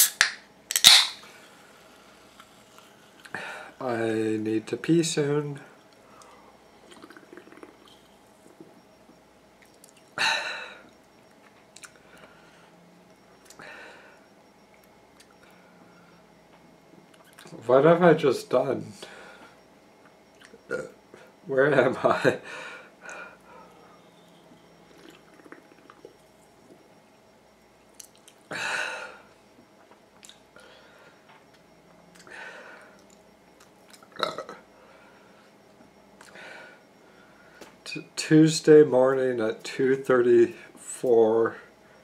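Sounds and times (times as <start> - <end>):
person gulping a drink: 6.8 - 8.0, 25.0 - 26.1.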